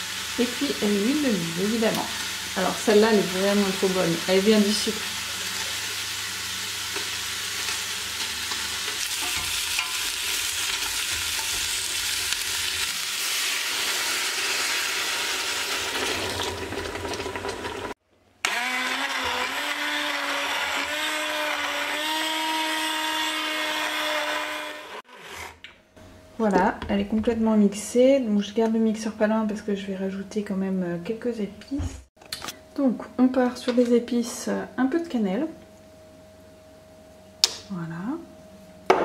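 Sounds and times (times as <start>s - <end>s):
vegetables sizzling in oil: 0.0s - 18.0s
water pouring into pot: 13.4s - 18.0s
stick blender motor whine: 18.4s - 25.6s.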